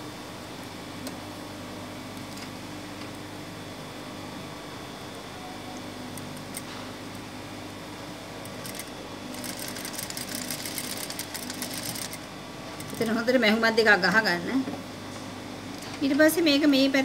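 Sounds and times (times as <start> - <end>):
sewing machine motor humming: 8.4 - 13.5
sewing machine stitching rapidly: 8.6 - 13.1.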